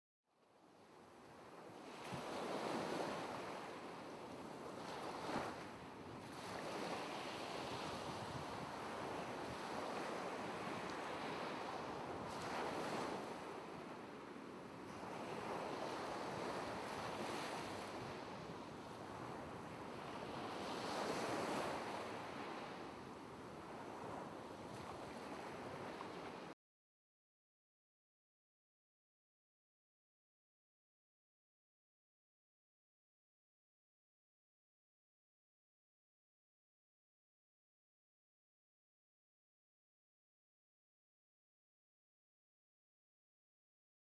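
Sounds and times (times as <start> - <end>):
ocean waves on shore: 0.4 - 26.6.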